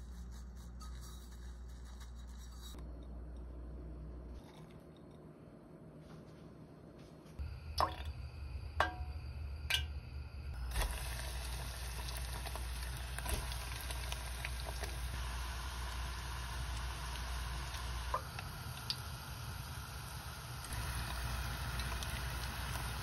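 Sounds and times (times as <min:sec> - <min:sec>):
food deep-frying in hot oil: 0:10.6 - 0:23.0.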